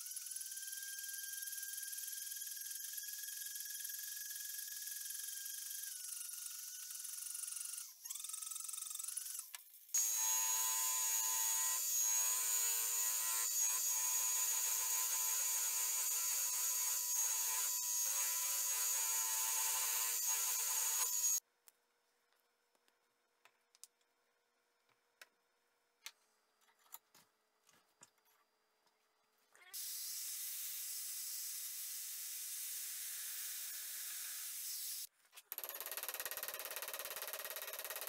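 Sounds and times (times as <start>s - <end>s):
rotary tool whining: 0.0s - 21.4s
drill press buffing wheel running: 10.0s - 21.4s.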